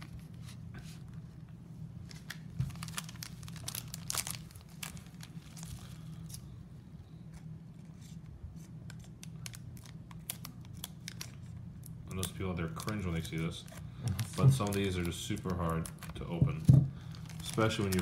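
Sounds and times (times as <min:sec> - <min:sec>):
steady low hum: 0:00.0 - 0:18.0
foil wrapper crinkling: 0:02.0 - 0:06.4, 0:08.9 - 0:18.0
foil wrapper tearing: 0:02.1 - 0:06.4, 0:08.9 - 0:16.4, 0:17.0 - 0:18.0.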